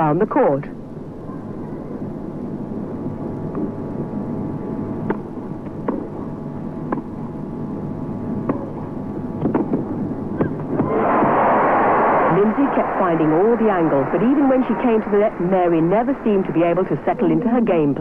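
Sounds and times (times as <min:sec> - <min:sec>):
crowd murmur: 0:10.8 - 0:17.5.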